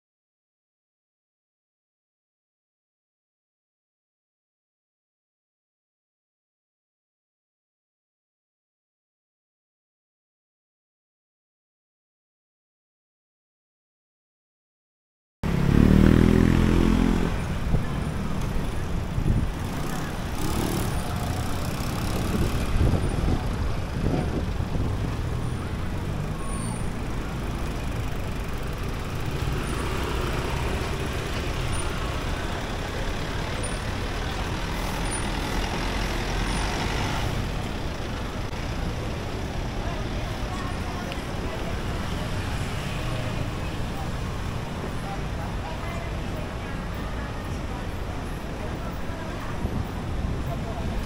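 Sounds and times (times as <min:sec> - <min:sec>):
vehicle engines passing: 0:15.4 - 0:51.0.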